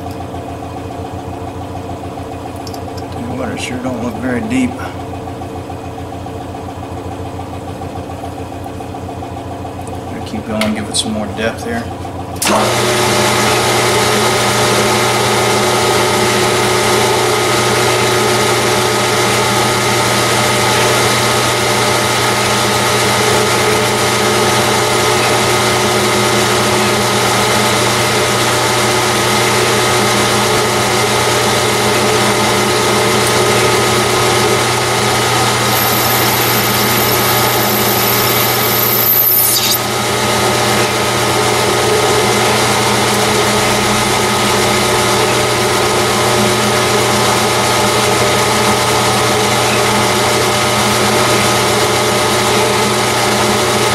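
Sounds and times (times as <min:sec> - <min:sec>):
metal lathe gear whine: 0:00.0 - 0:53.9
thin high whine: 0:33.5 - 0:47.0.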